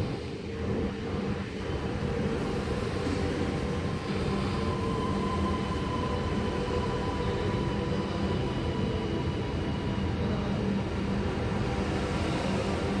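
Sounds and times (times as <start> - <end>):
metro train running rumble: 0.0 - 13.0.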